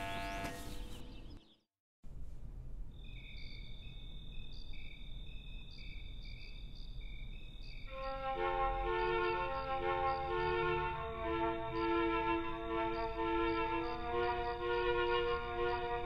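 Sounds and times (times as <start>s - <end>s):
crickets chirping: 2.9s - 11.1s.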